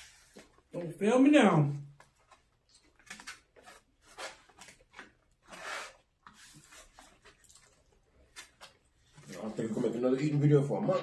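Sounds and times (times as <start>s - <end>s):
plastic forks scraping styrofoam: 5.4s - 7.3s.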